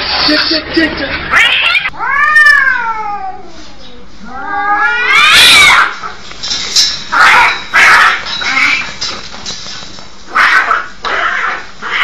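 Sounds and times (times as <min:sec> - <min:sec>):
cats yowling: 0:01.3 - 0:06.2, 0:10.3 - 0:12.0.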